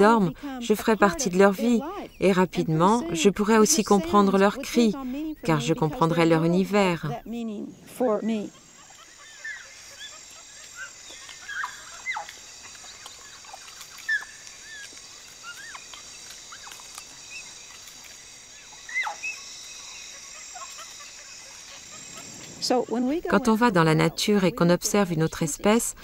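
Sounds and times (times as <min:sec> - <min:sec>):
high insect drone: 0:00.0 - 0:26.0
high-pitched animal calls: 0:08.3 - 0:17.6, 0:18.6 - 0:24.5.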